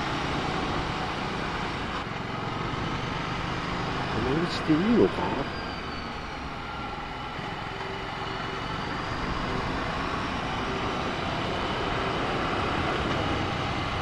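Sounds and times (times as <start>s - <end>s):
motorcycle engine running: 0.0s - 4.4s.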